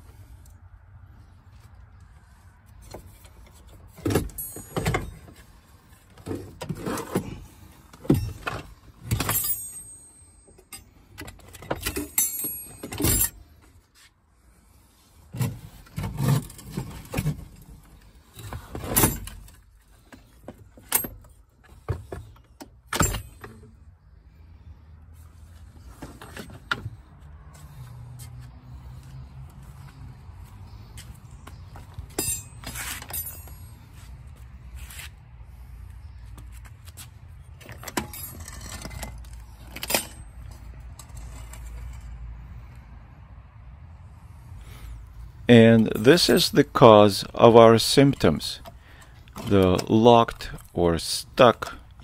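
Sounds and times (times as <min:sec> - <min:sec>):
metal and plastic parts clinking: 0:08.0 - 0:13.4, 0:32.1 - 0:33.8, 0:37.6 - 0:42.0.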